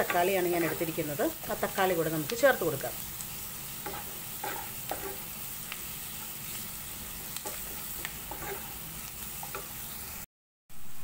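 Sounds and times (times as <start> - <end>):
spatula scraping pan: 0.0 - 1.0, 3.6 - 5.4, 7.2 - 9.8
vegetables sizzling in oil: 0.0 - 11.0.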